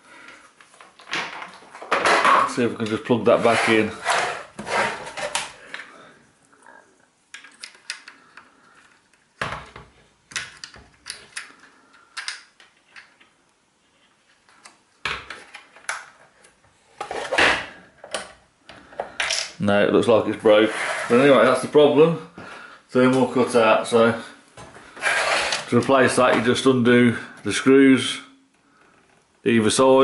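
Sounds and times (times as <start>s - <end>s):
plastic parts clicking and tapping: 7.3s - 13.4s.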